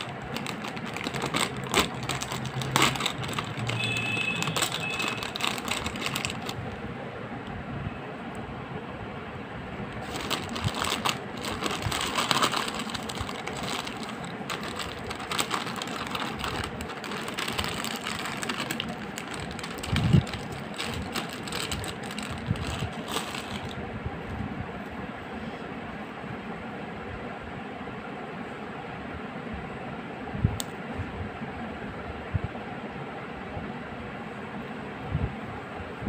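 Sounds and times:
foil snack packet crinkling: 0.0 - 6.8, 10.0 - 23.8
steady background noise: 0.0 - 36.0.

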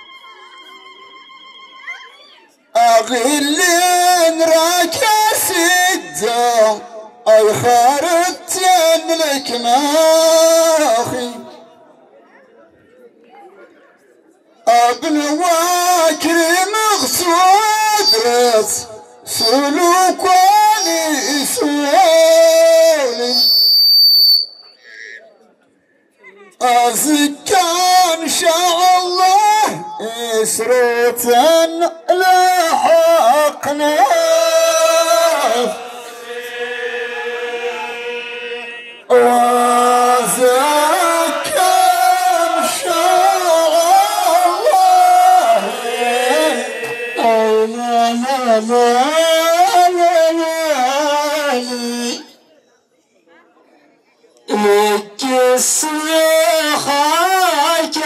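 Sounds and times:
man singing over loudspeakers: 0.0 - 1.6, 2.6 - 12.1, 14.6 - 24.5, 26.5 - 52.6, 54.4 - 58.0.

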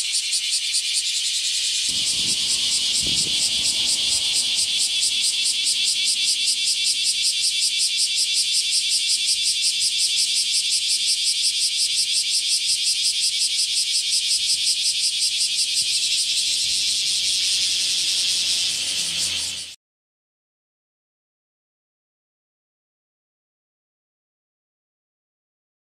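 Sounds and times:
cicadas buzzing in chorus: 0.0 - 19.8.

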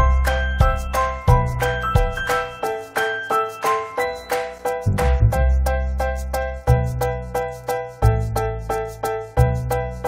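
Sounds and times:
low bass line: 4.9 - 7.3.

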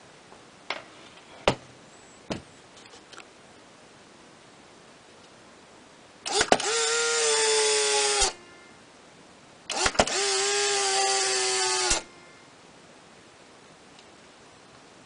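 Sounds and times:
camera shutter click: 6.3 - 6.7
camera motor whirring: 6.3 - 8.4, 9.7 - 12.1.

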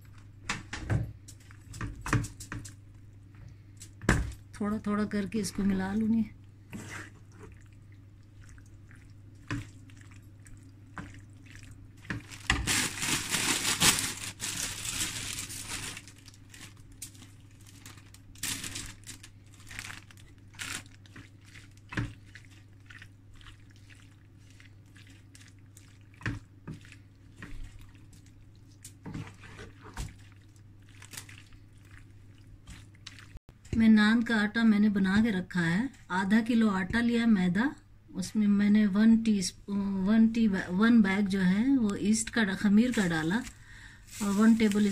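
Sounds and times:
wet squelches: 5.4 - 34.4
wooden spatula scraping frying pan: 6.7 - 7.5, 29.0 - 30.2.

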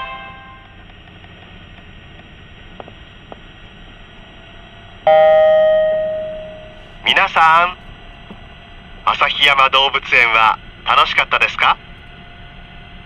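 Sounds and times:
electronic chime note: 5.1 - 6.8.

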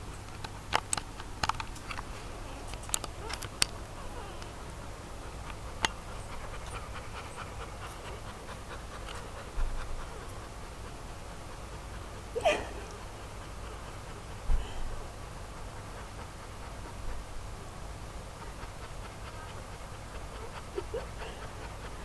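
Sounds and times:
puppy breathing: 0.2 - 22.0
puppy sucking clicks: 0.4 - 4.6, 5.3 - 10.5.

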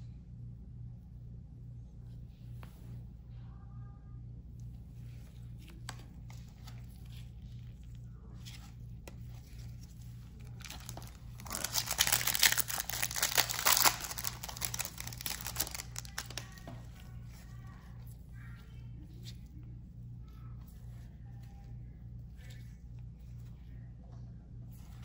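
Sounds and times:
foil wrapper tearing and crinkling: 10.4 - 16.7.

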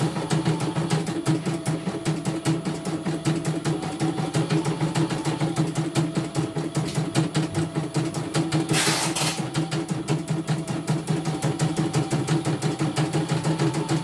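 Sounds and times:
motor hum: 0.0 - 14.0.

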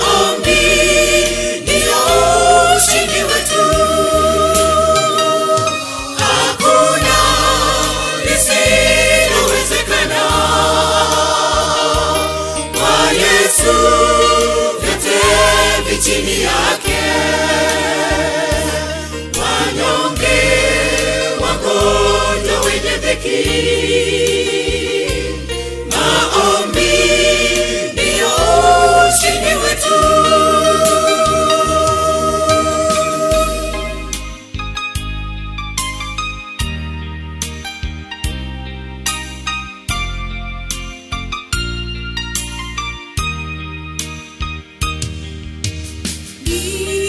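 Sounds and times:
choir singing gospel: 0.0 - 34.3, 46.4 - 47.0
steady bass line: 0.0 - 47.0.

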